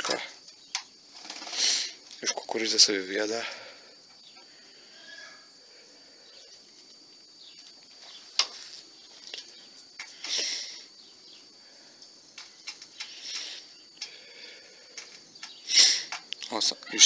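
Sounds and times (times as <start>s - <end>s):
rustling: 6.6s - 10.9s
pigeons pecking taps: 12.4s - 14.2s, 14.9s - 16.5s.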